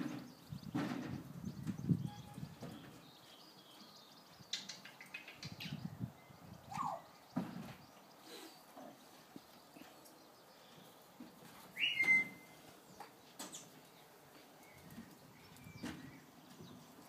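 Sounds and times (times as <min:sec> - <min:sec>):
short upward whistle: 0:11.8 - 0:12.5.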